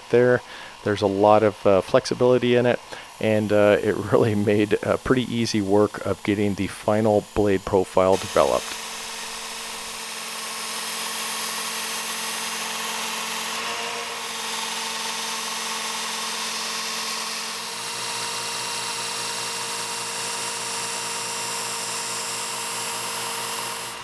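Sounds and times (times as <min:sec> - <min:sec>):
belt sharpener motor whine: 0:00.0 - 0:24.0
abrasive belt hiss grinding: 0:00.2 - 0:10.1.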